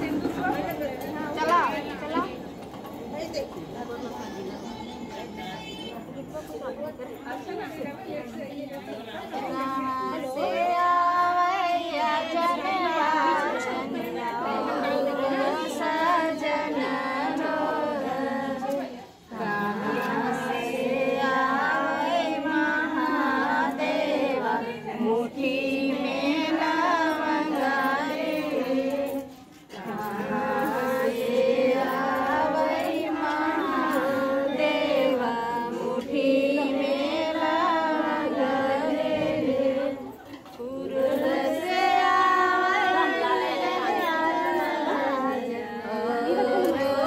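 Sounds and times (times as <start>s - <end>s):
women singing in chorus: 8.9s - 47.0s.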